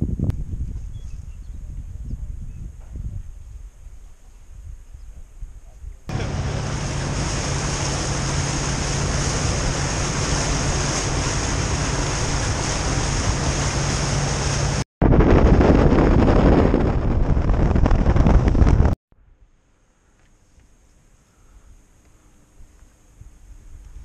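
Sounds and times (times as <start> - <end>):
wind on microphone: 0.0 - 19.0
boat engine hum: 6.1 - 14.8
water rushing past hull: 6.1 - 14.8.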